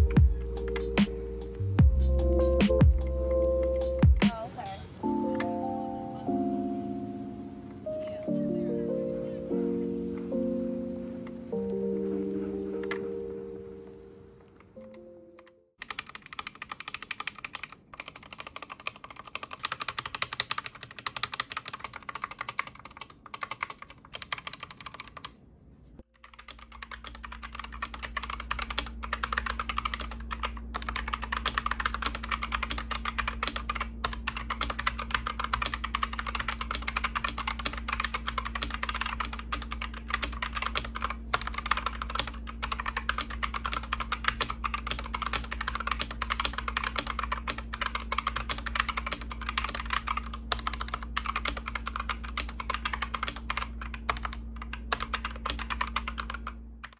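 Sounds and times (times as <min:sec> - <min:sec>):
keyboard keys pressed: 0:00.0 - 0:07.0, 0:07.6 - 0:13.5, 0:14.4 - 0:25.4, 0:26.2 - 0:56.9
fast keyboard typing clacks: 0:15.8 - 0:25.3, 0:26.2 - 0:56.9
steady low hum: 0:24.4 - 0:56.9.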